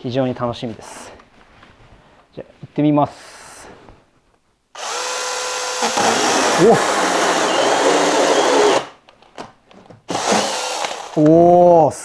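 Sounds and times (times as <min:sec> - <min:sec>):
chainsaw cutting wood: 0:04.8 - 0:09.0, 0:10.1 - 0:11.2.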